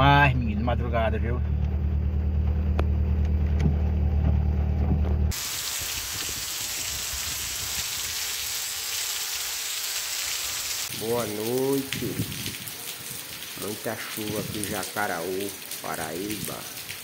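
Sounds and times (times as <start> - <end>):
heavy rain falling: 5.3 - 17.0.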